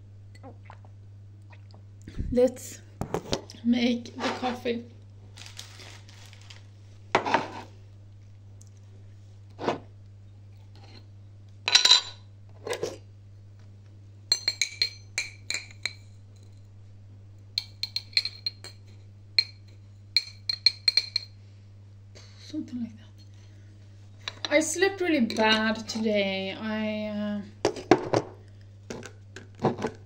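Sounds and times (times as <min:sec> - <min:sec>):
metal spoon clinking glass jar: 0:17.6 - 0:18.8, 0:20.2 - 0:21.3.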